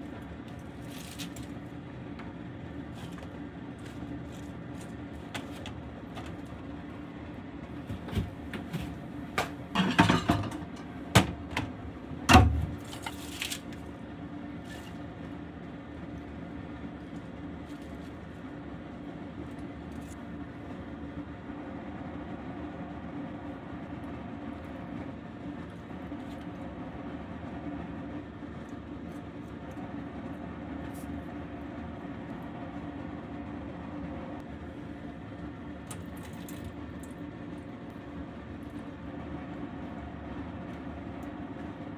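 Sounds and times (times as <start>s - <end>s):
steady low hum: 0.0s - 41.9s
kitchenware clattering on counter: 9.8s - 10.7s.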